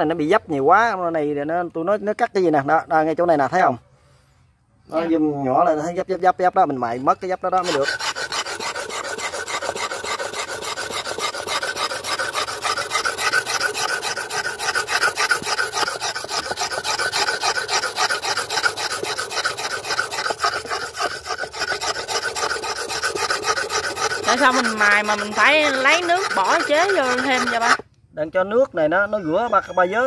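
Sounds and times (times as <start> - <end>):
blade scraping on whetstone: 7.5 - 27.9.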